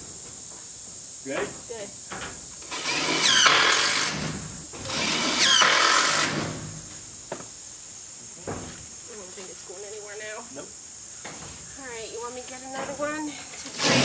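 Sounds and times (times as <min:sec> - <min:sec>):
power drill whining: 0:02.6 - 0:06.6, 0:13.6 - 0:14.0.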